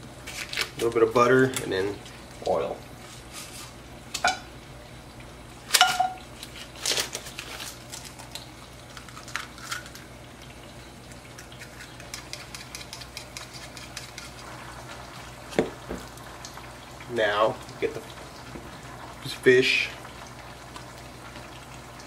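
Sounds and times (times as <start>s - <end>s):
fork beating egg in bowl: 11.4s - 14.6s
eggs knocked against bowl: 15.6s - 16.0s.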